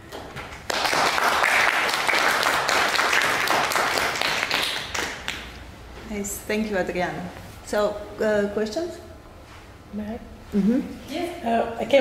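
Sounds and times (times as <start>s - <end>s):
audience applauding: 0.5s - 5.5s.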